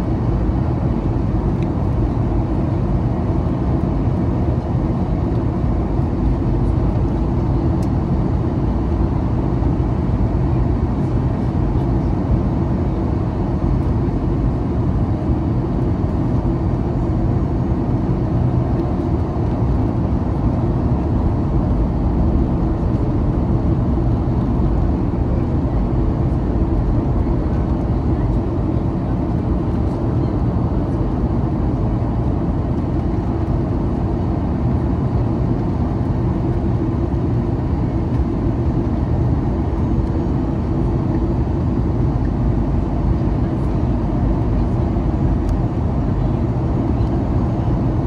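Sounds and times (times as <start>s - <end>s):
jet engines droning: 0.0s - 48.0s
airflow rushing over fuselage: 18.5s - 31.0s.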